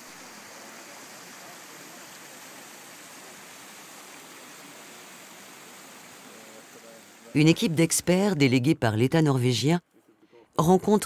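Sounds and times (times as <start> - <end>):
stream rushing over stones: 0.0 - 8.4.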